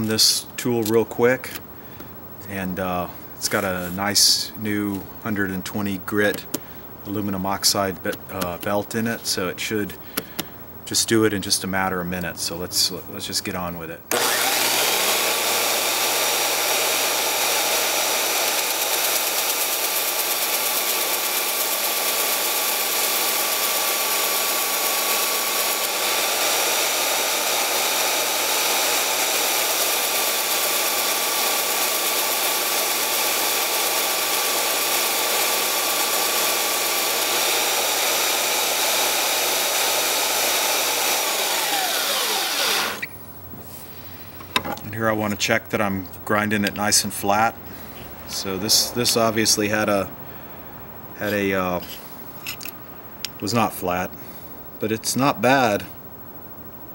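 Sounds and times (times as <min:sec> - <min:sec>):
belt sander grinding steel: 0:14.1 - 0:43.1.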